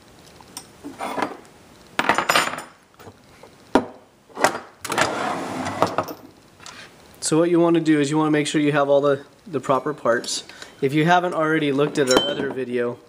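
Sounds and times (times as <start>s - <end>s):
metal hand tools clinking: 11.7s - 12.7s.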